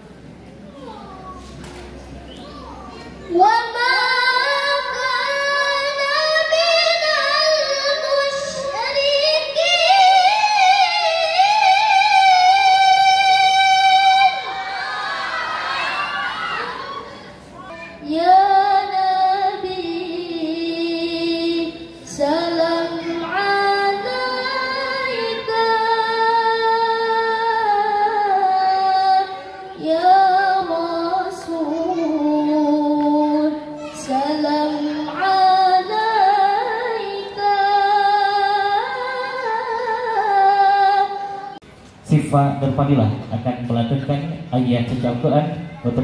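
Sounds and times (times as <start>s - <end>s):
woman chanting into microphone: 18.0s - 41.5s.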